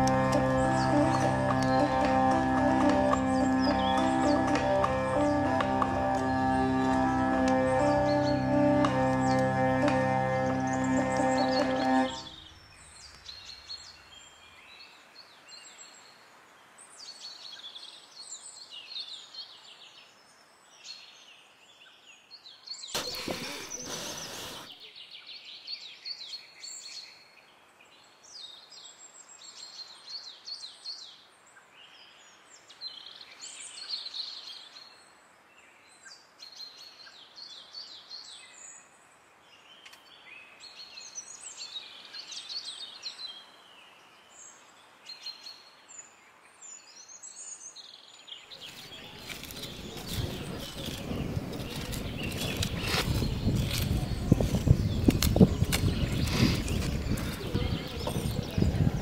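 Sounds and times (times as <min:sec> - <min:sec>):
small birds chirping: 0:00.0 - 0:14.6, 0:22.6 - 0:27.1, 0:46.7 - 0:59.0
stick scraping dry soil: 0:23.0 - 0:24.7, 0:48.6 - 0:59.0
outdoor hiss: 0:23.0 - 0:24.8.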